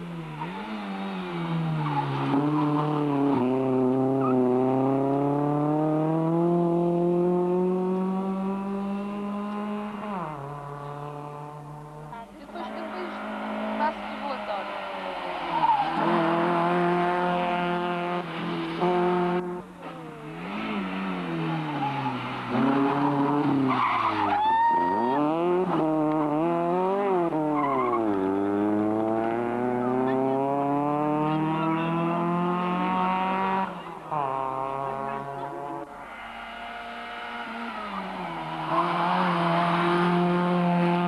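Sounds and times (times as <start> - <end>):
rally car engine revving: 0.0 - 41.0
tyre squeal: 21.7 - 25.2.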